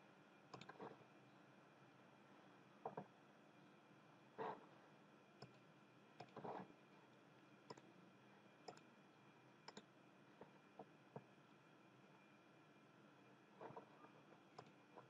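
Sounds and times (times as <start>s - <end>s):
faint computer mouse clicks: 0.5s - 0.9s, 5.4s - 5.6s, 7.7s - 7.9s, 8.6s - 8.9s, 9.7s - 9.9s, 14.6s - 15.0s.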